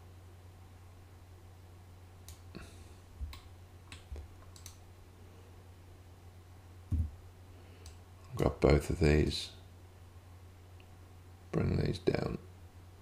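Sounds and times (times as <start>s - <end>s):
low electrical hum: 0.0s - 13.0s
computer mouse and keyboard clicks: 3.3s - 4.8s
soft low thump: 6.9s - 7.2s.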